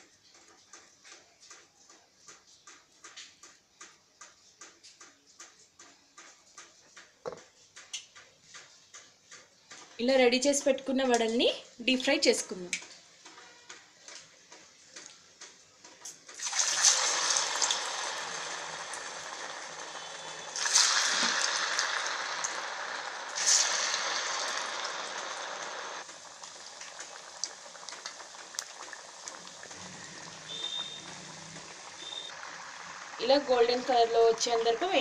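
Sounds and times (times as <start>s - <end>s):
oil crackling: 13.5s - 35.0s
food sizzling in hot oil: 16.3s - 35.0s.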